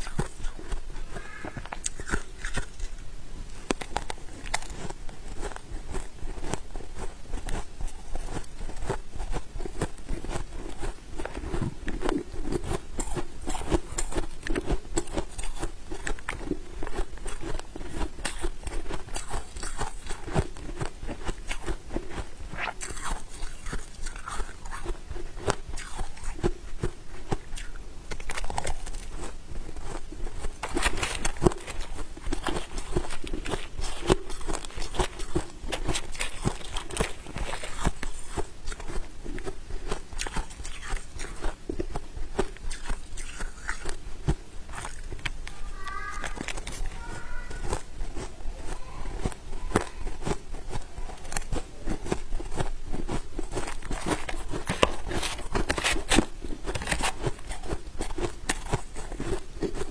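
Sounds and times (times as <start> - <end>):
frost being chewed: 0.0 - 59.9
metal spoon scooping frost: 28.2 - 41.6.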